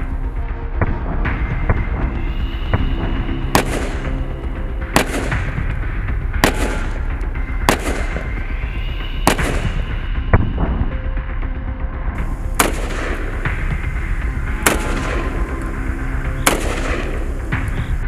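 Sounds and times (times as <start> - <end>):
background music: 0.0 - 18.0
rifle shots with echo: 3.5 - 8.5, 9.2 - 9.9, 12.2 - 17.9.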